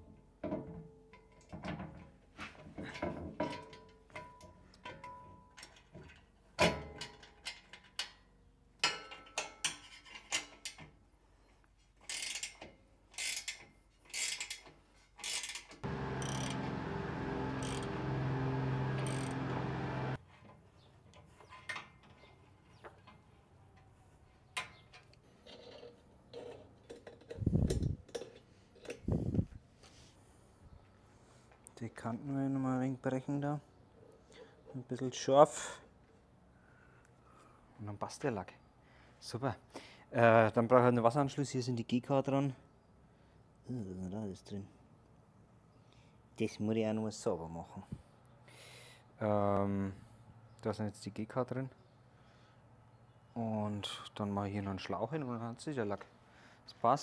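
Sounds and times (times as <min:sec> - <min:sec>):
ratchet clicking: 0:15.2 - 0:16.6, 0:17.6 - 0:17.9, 0:19.0 - 0:19.4
steady hum with shifting tones: 0:15.8 - 0:20.2.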